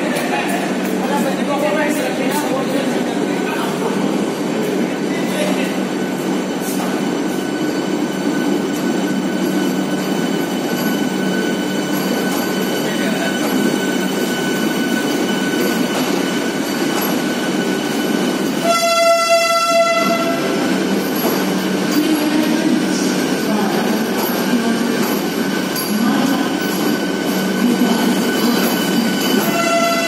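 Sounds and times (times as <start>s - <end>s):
electric train rolling: 0.0s - 30.0s
train horn: 18.6s - 20.5s, 29.5s - 30.0s.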